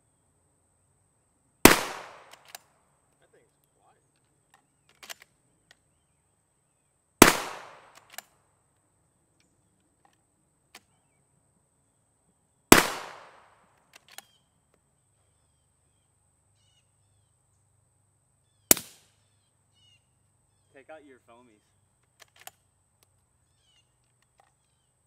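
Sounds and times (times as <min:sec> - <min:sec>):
rifle shots with echo: 0:01.6 - 0:02.6, 0:07.2 - 0:08.2, 0:12.7 - 0:13.6, 0:18.7 - 0:19.0
faint rifle bolt click: 0:02.2 - 0:02.6.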